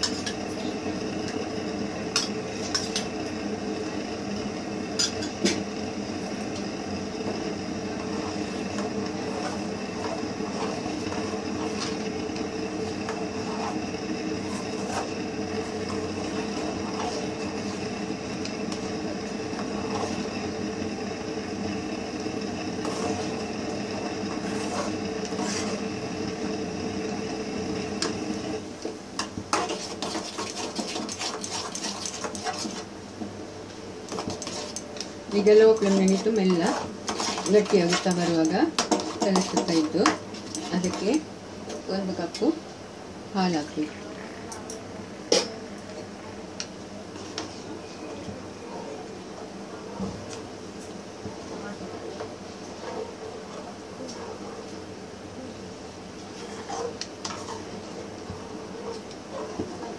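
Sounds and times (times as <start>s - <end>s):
ladle scraping steel pan: 8.0s - 17.9s, 22.7s - 23.4s, 24.3s - 25.9s, 29.5s - 32.9s, 34.1s - 41.1s.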